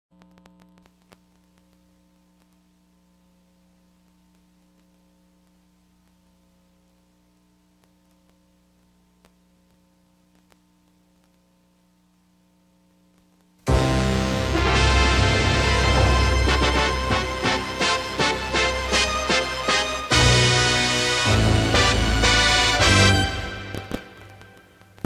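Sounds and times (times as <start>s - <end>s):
faint electrical hum: 0.1s - 25.0s
faint clicks: 0.2s - 2.7s, 4.0s - 6.5s, 7.3s - 11.5s, 12.9s - 13.6s.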